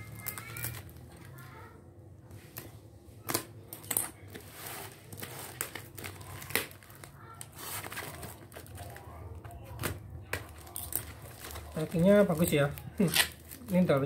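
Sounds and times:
tape and plastic wrap crinkling: 0.0s - 14.0s.

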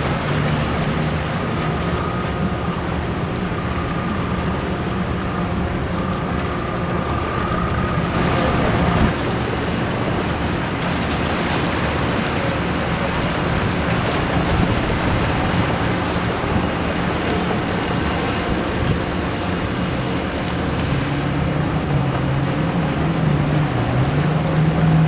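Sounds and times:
boat engines humming: 0.0s - 25.0s
water rushing: 0.0s - 25.0s
wind buffeting microphone: 0.0s - 25.0s
high steady whine: 1.5s - 10.7s.

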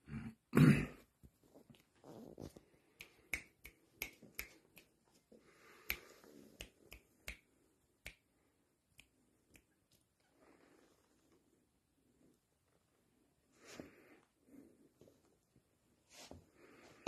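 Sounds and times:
fingers snapping: 3.0s - 4.9s.

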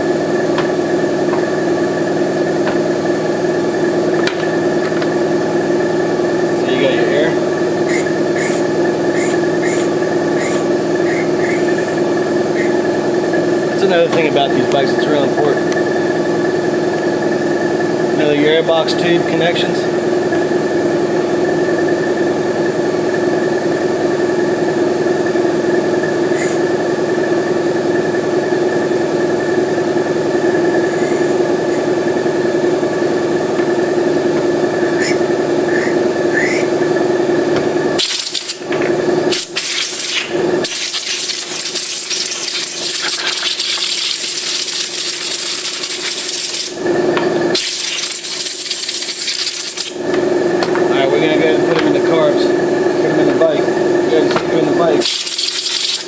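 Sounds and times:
steady machine hum: 0.0s - 56.0s
compressed air hissing from blow gun: 39.3s - 46.8s, 47.5s - 50.0s, 55.0s - 56.0s.

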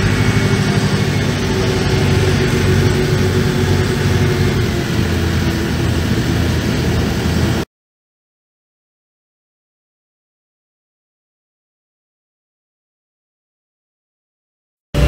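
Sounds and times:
ferry engine droning: 0.0s - 7.7s.

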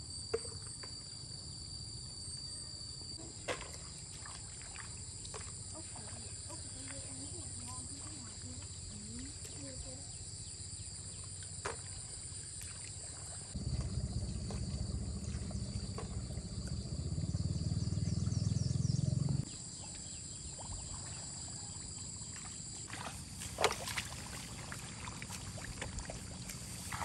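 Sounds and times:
low rumble: 13.6s - 19.5s.

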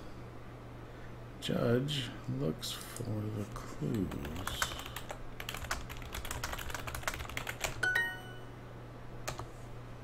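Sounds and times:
keyboard typing clicks: 4.0s - 8.2s
short ringing tone: 7.8s - 8.6s.

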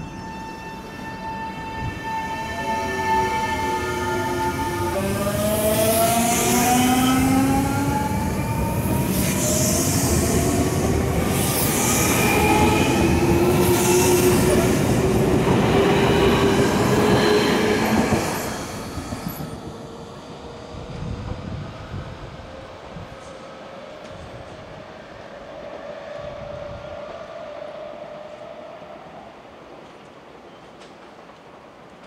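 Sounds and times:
train wheels on rails: 3.4s - 26.3s, 29.6s - 32.0s.

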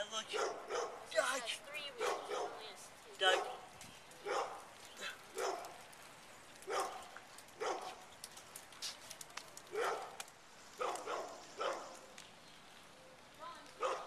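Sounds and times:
dog barking: 0.3s - 1.1s, 2.0s - 2.6s, 3.3s - 3.6s, 4.2s - 4.7s, 5.3s - 5.8s, 6.6s - 8.0s, 9.7s - 10.2s, 10.8s - 12.0s, 13.8s - 14.0s.

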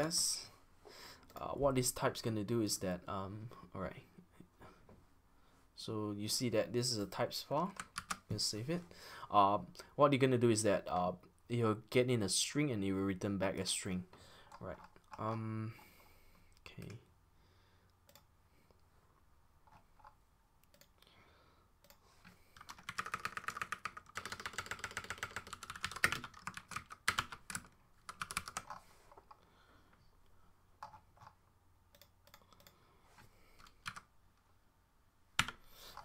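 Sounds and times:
typing on computer keyboard: 7.7s - 8.2s, 22.6s - 28.8s, 33.6s - 34.1s.

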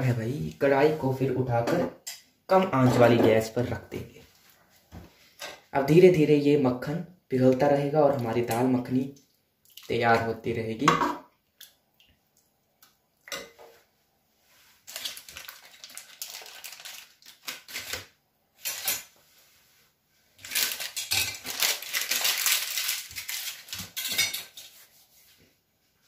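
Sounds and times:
metal utensils scraping pots: 23.8s - 24.8s.

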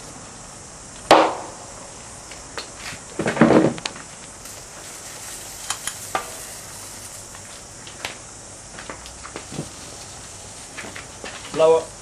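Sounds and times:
fire hissing: 3.8s - 12.0s
sharp crackles and pops: 3.8s - 12.0s.

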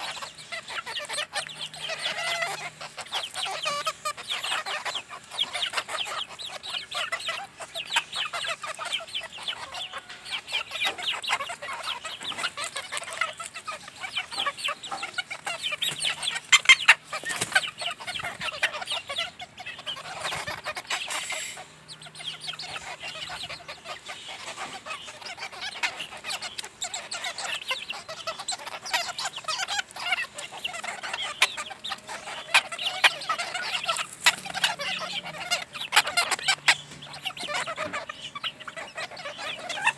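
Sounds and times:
hens clucking: 0.0s - 39.9s.

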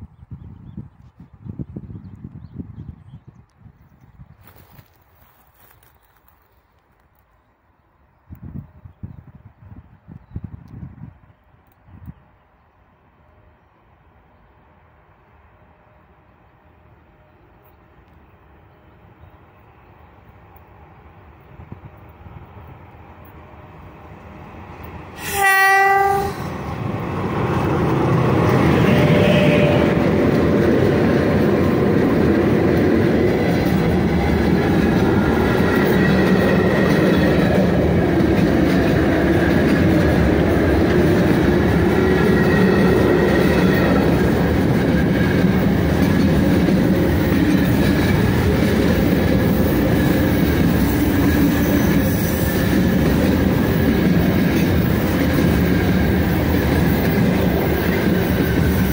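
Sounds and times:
train wheels rumbling on rails: 17.3s - 58.9s
locomotive horn blast: 25.2s - 26.6s, 28.5s - 30.2s.

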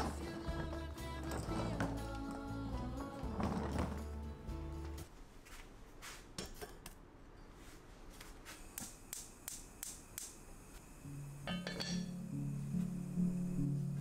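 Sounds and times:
background music: 0.0s - 5.1s.

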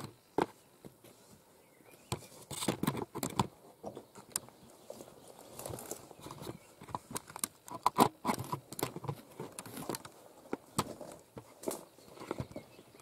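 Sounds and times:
handling clicks and knocks: 2.0s - 4.6s, 5.5s - 13.0s
twigs being brushed: 4.6s - 7.2s
footsteps on debris: 9.0s - 12.7s.

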